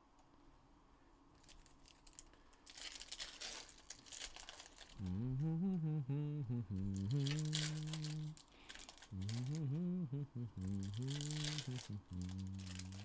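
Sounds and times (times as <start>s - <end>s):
foil wrappers crinkling and tearing: 1.4s - 5.0s, 7.0s - 9.6s, 10.6s - 13.0s
man humming: 5.0s - 8.4s, 9.1s - 13.0s.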